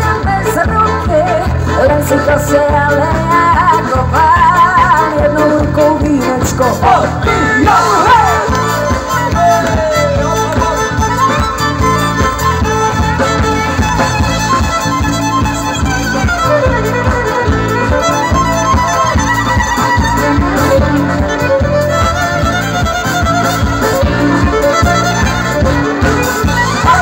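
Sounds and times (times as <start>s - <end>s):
bass guitar: 0.0s - 27.0s
electric guitar: 0.0s - 27.0s
fiddle melody: 0.0s - 27.0s
steady drum beat: 6.1s - 27.0s.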